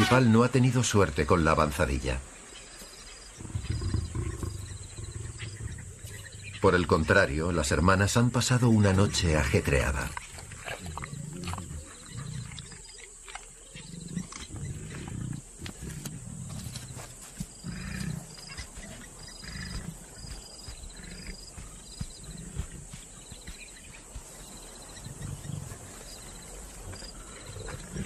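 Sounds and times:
lion grunting calls: 3.4s - 7.2s, 10.0s - 28.0s.

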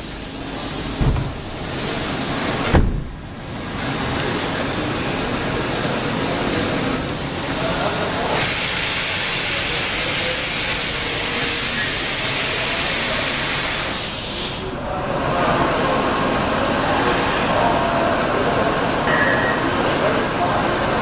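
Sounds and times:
coolant spraying hiss: 0.0s - 21.0s
machining center running: 0.0s - 21.0s.

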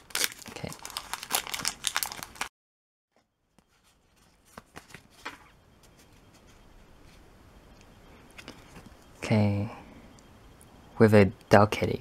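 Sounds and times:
low room hiss: 3.2s - 12.0s.

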